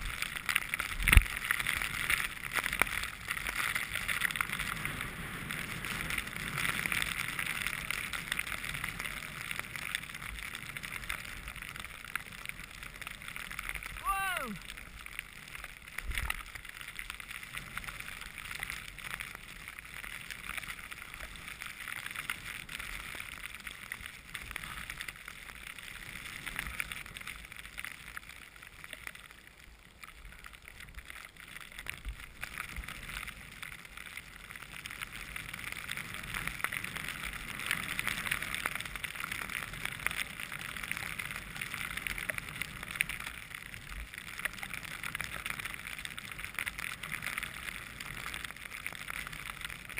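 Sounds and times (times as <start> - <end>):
skis hissing through powder snow: 0.0 - 13.8.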